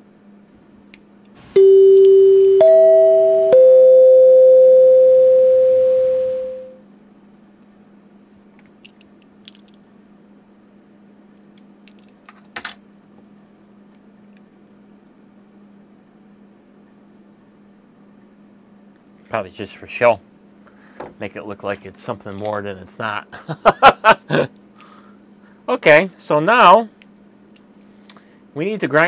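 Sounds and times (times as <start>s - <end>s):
three-note chime: 1.6s - 6.8s.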